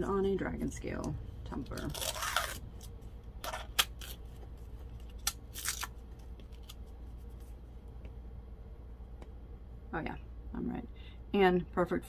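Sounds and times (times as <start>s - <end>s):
paper wrapping tearing: 1.6s - 4.3s, 5.0s - 6.8s.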